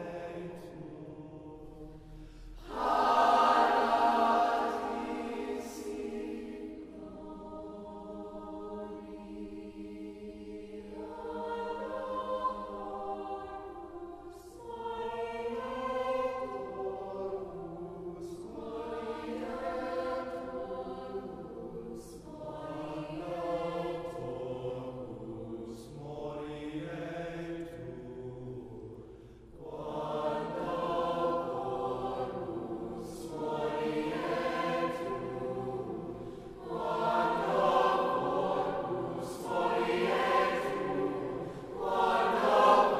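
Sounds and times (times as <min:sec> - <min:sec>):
mixed choir singing: 0:00.0 - 0:42.9.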